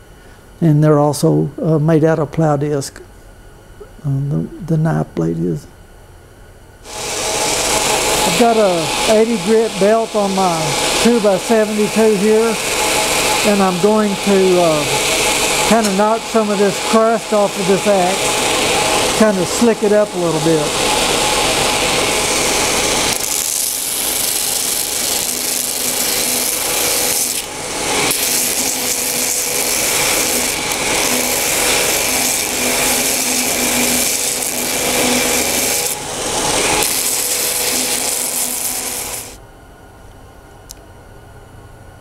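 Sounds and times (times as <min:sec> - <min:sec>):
belt grinder grinding metal: 0:06.9 - 0:39.4.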